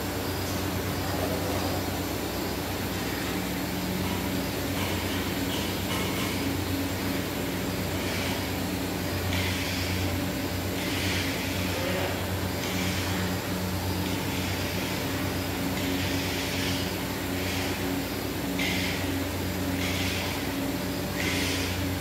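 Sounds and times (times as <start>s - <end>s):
exhaust fans turning: 0.0s - 22.0s
machinery hum and drone: 0.0s - 22.0s.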